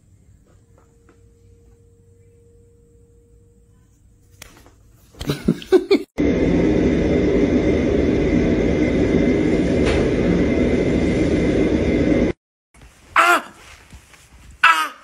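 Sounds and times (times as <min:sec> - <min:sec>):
loud steady rumbling: 0:06.2 - 0:12.4.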